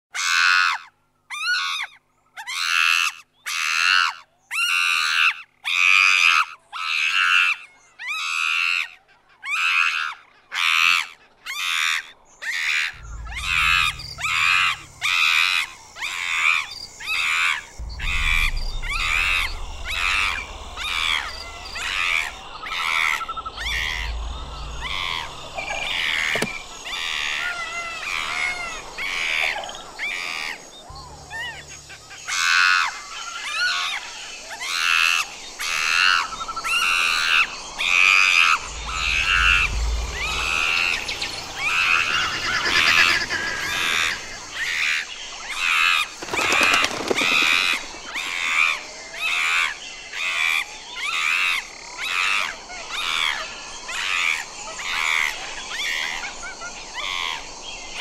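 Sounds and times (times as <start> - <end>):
low rumble: 12.9 - 33.2, 36.2 - 44.6.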